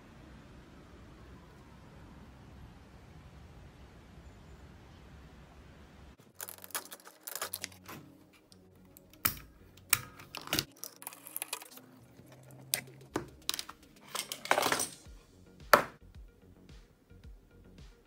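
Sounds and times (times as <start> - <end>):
metallic rattle: 10.0 - 15.1.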